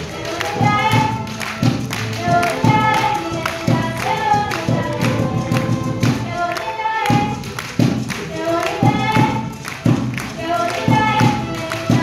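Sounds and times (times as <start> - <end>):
violins playing: 0.0 - 12.0
woman singing into a microphone: 10.4 - 12.0.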